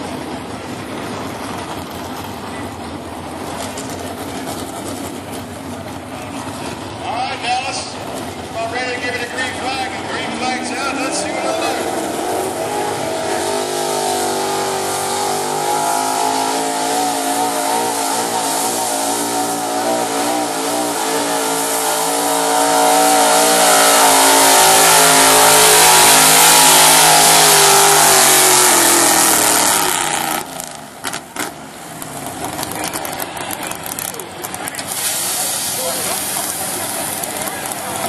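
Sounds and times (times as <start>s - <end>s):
truck engine at full throttle: 0.0s - 38.0s.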